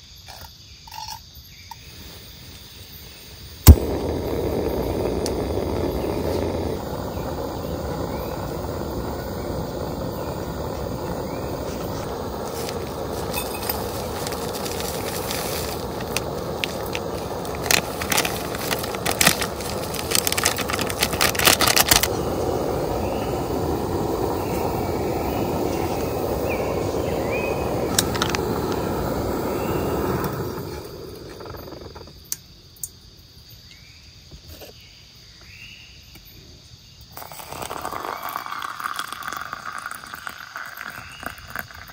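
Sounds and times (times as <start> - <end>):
faint chirps: 0.0 - 21.4, 22.1 - 41.9
gas stove hissing: 1.9 - 32.2
heating water crackling: 3.6 - 32.1, 37.2 - 41.9.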